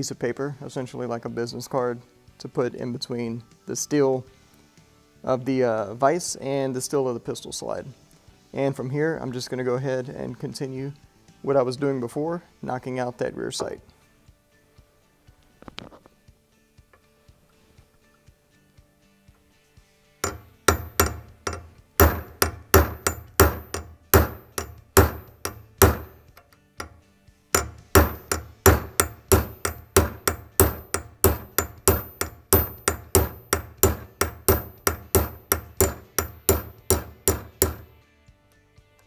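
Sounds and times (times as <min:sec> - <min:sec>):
hammer tapping metal punch: 0:20.2 - 0:27.0, 0:27.6 - 0:37.9.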